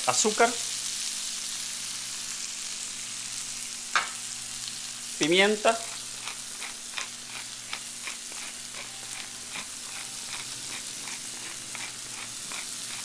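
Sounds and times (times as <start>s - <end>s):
fruit sizzling in butter: 0.0s - 13.0s.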